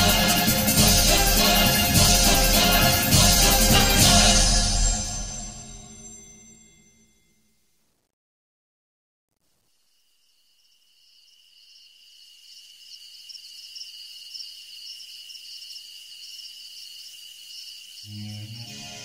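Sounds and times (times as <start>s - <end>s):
insects chirping: 9.5s - 19.0s.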